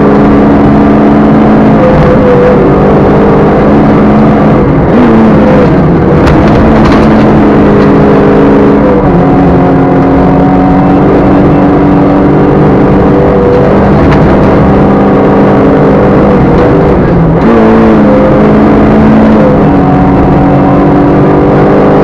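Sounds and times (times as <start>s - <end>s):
rally car engine at high revs: 0.0s - 22.0s
road noise: 0.0s - 22.0s.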